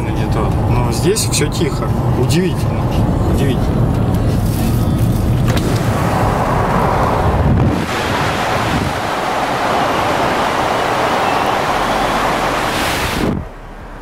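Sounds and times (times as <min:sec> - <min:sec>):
vehicle rumble inside cabin: 0:00.0 - 0:14.0
tyre noise on road: 0:02.9 - 0:14.0
wind buffeting microphone: 0:04.9 - 0:13.6
wind rushing: 0:05.2 - 0:14.0.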